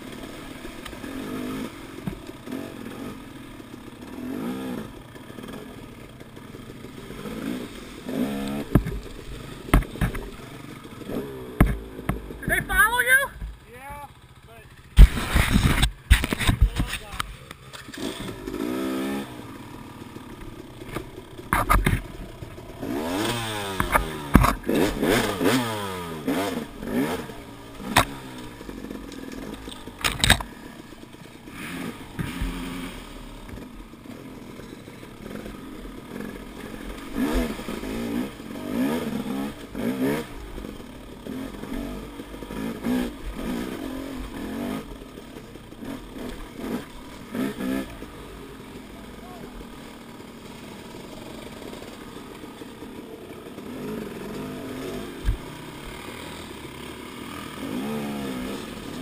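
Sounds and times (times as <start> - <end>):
dirt bike engine revving: 0.0 - 59.0
sharp knocks and clatter: 8.6 - 10.4, 14.9 - 18.4, 20.8 - 22.6.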